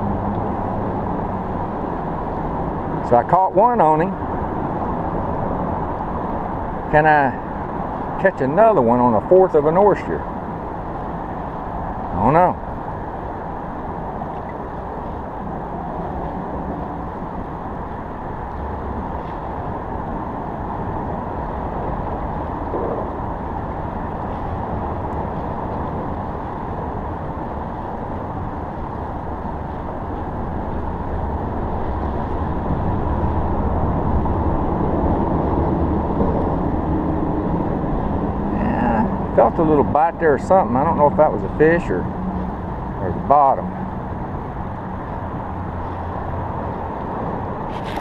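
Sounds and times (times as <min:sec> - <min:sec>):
road traffic rumble on bridge: 0:00.0 - 0:48.0.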